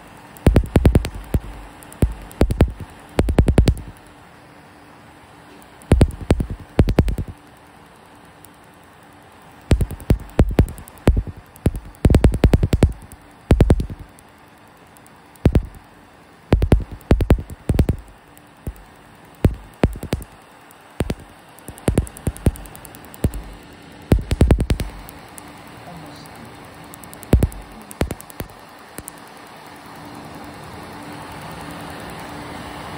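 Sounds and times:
laser snapping clicks: 0.0 - 4.2, 5.6 - 7.7, 9.3 - 25.5, 26.9 - 29.3.

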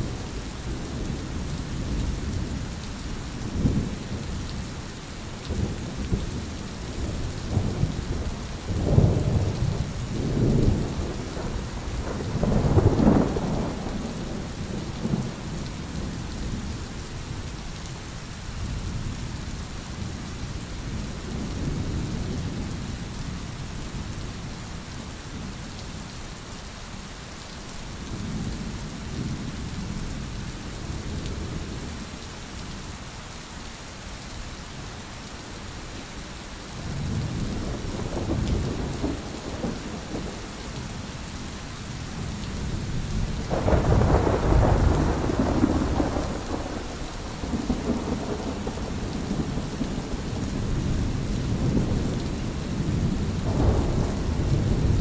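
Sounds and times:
steady rain: 0.0 - 55.0
thunder rumbling: 5.5 - 16.8, 36.8 - 41.0, 42.1 - 55.0.

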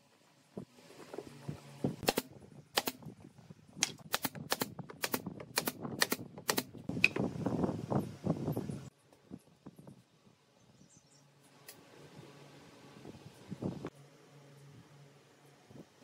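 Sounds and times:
nailer clicks: 3.8 - 6.7.

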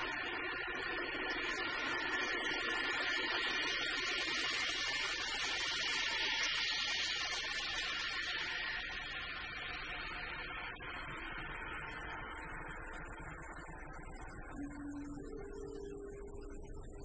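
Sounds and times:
electronic synthesizer drone: 13.4 - 17.0.

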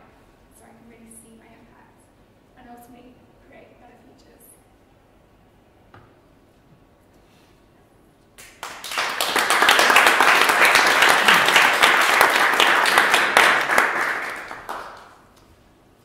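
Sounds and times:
audience applauding: 8.4 - 15.2.

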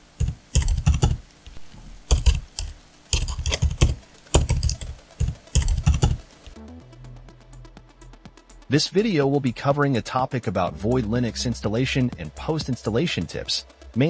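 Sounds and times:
keyboard typing: 0.1 - 6.3.

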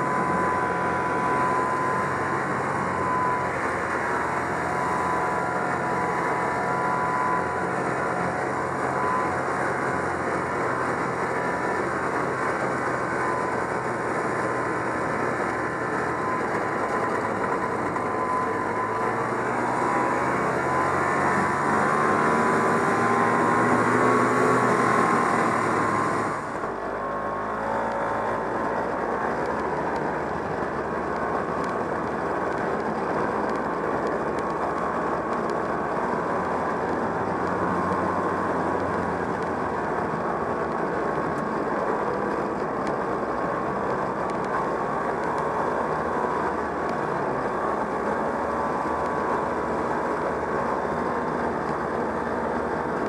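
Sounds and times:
snowmobile two-stroke engine running: 0.0 - 53.0.

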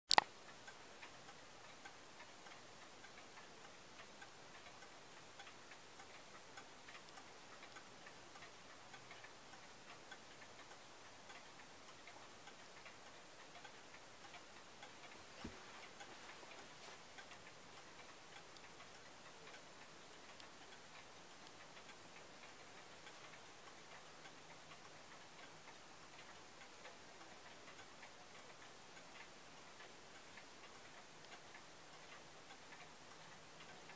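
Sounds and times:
sharp click: 0.1 - 0.3
wall clock ticking: 0.1 - 33.9.

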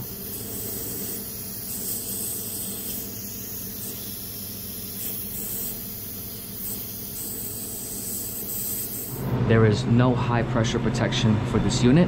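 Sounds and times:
machinery hissing: 0.0 - 9.4.

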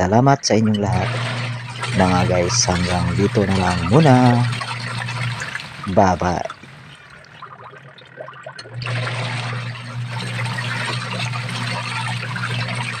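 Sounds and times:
washing machine motor hum: 0.0 - 13.0
water splashing: 0.0 - 13.0
water and clothes sloshing: 0.5 - 7.3.

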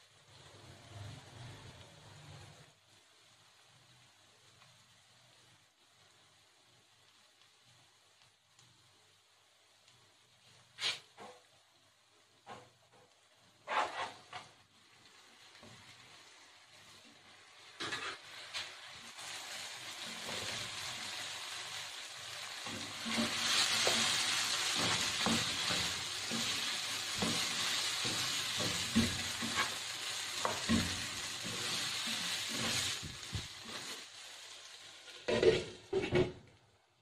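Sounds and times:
potatoes sizzling in oil: 0.0 - 37.0
spatula scraping pan: 12.4 - 14.6, 17.6 - 21.0, 22.3 - 34.0, 35.1 - 36.3.

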